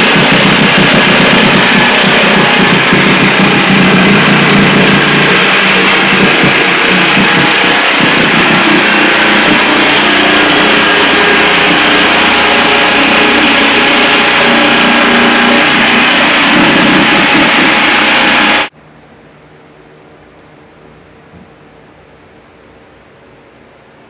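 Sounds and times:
electric cutting tool cutting wall: 0.0 - 18.7.

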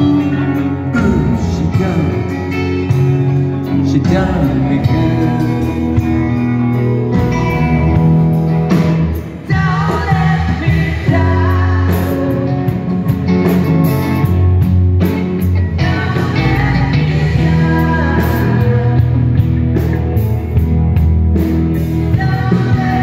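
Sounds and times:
person singing: 0.0 - 8.0, 9.1 - 13.2, 15.6 - 19.5, 22.0 - 23.0
live rock band: 0.0 - 23.0.

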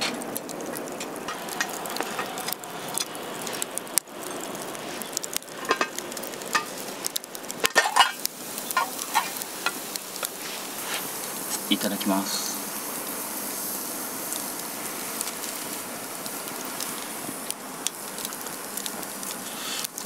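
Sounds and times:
food sizzling in a pan: 0.0 - 20.0.

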